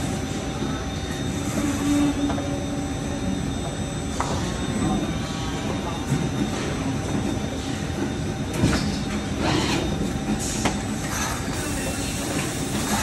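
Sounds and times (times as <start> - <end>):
injection molding machine rumble: 9.2 - 13.0.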